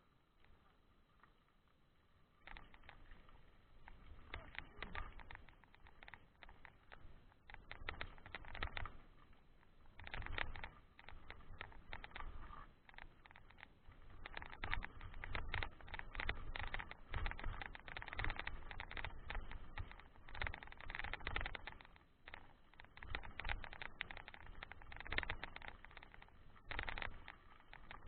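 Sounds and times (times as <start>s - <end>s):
clicks and rattles: 0.4s - 28.0s.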